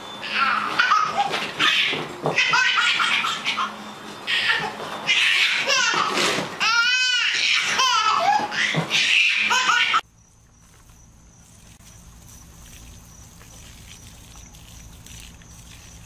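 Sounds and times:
baby laughing: 0.3 - 10.0.

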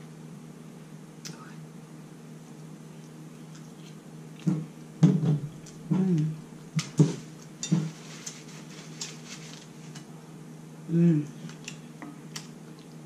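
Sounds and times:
woman's wordless vocal sounds: 5.9 - 6.4, 10.9 - 11.5.

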